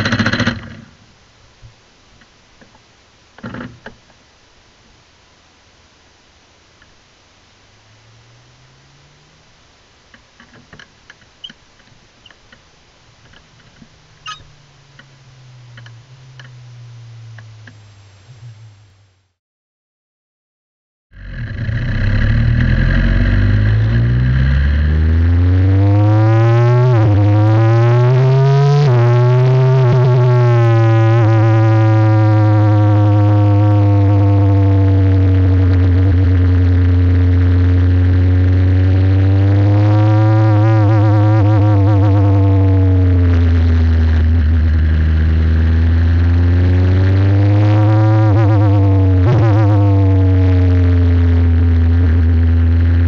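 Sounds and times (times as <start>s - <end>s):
race car engine revving: 7.6s - 9.8s, 13.2s - 18.8s, 21.2s - 53.0s.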